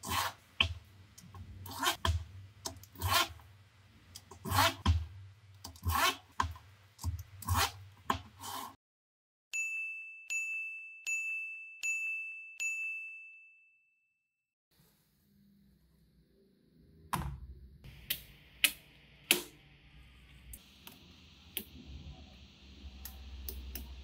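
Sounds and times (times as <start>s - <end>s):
high bell-like dings: 9.5s - 14.3s.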